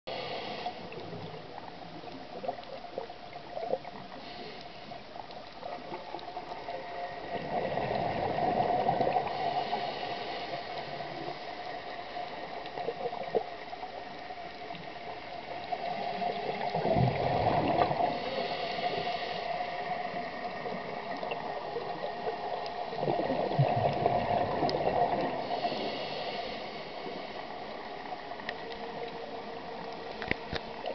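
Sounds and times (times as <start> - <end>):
faint steady hiss: 0.1 - 30.9
underwater bubbles gurgling: 0.1 - 30.9.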